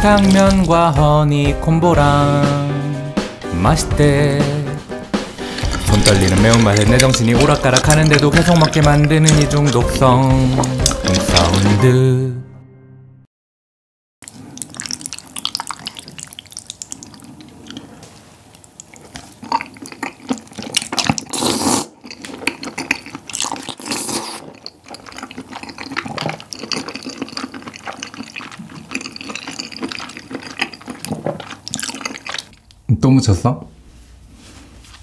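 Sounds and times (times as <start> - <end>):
sticky chewing and smacking: 0.0 - 1.0, 5.2 - 11.9, 14.2 - 32.8
loud slurps: 5.2 - 11.8, 18.9 - 32.6.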